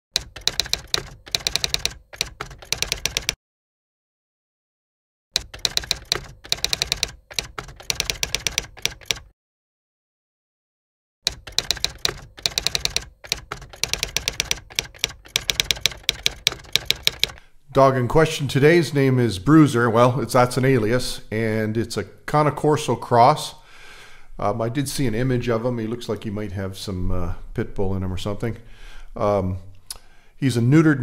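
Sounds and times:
typewriter keys clacking: 0:00.1 - 0:03.4, 0:05.4 - 0:09.3, 0:11.3 - 0:17.4.

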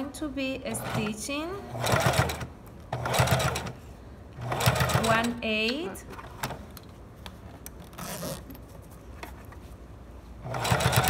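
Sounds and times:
sewing machine stitching: 0:00.7 - 0:03.8, 0:04.4 - 0:05.4, 0:10.4 - 0:11.0.

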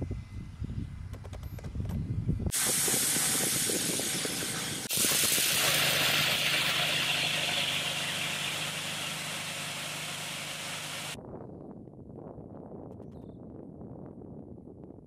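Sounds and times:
auger engine humming: 0:02.5 - 0:11.2
seed pouring with rushing hiss: 0:02.5 - 0:11.2.

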